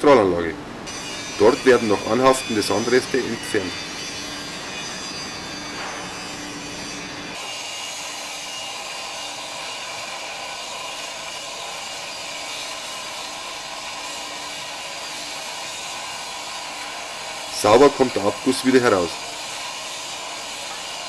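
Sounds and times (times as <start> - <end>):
shot-blasting machine hissing: 0.9 - 21.0.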